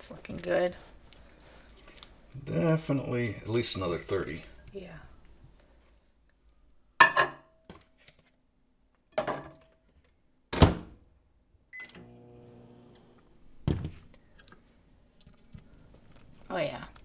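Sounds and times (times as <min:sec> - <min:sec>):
microwave oven humming: 0:11.8 - 0:13.3.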